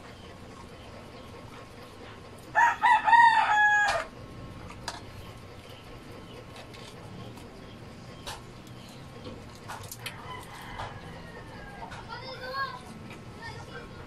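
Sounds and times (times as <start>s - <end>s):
rooster crowing: 2.5s - 4.1s, 10.0s - 12.1s.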